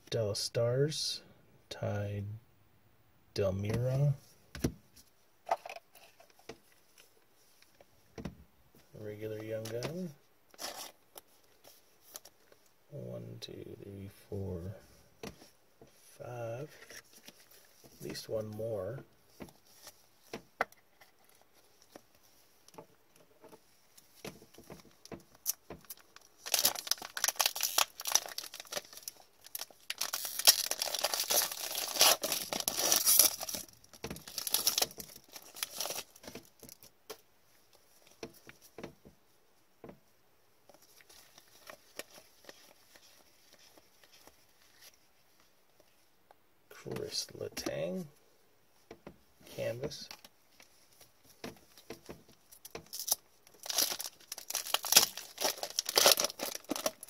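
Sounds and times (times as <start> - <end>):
foil wrapper tearing and crinkling: 25.4 - 36.8, 52.9 - 57.0.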